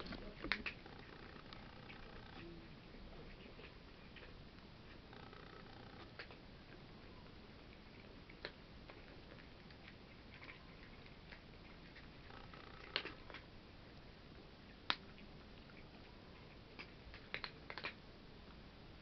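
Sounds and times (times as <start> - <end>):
cats chewing clicks: 0.0 - 2.5, 3.2 - 6.8, 7.6 - 13.5, 14.7 - 18.0.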